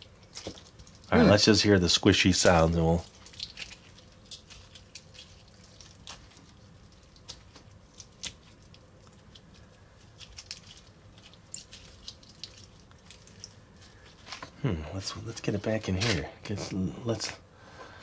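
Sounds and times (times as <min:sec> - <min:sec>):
slime squishing and popping: 0:02.4 - 0:09.4.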